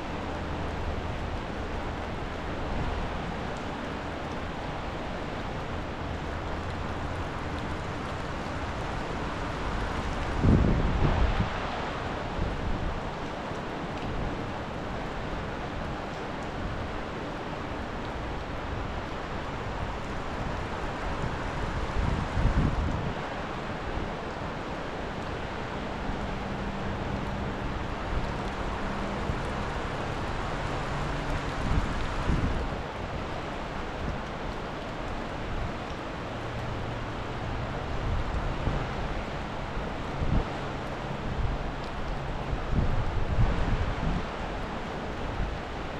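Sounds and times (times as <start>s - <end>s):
low wind rumble on microphone: 0.0s - 45.9s
river rushing: 0.0s - 45.9s
wind buffeting microphone: 8.5s - 13.0s, 19.7s - 23.4s, 27.9s - 33.2s.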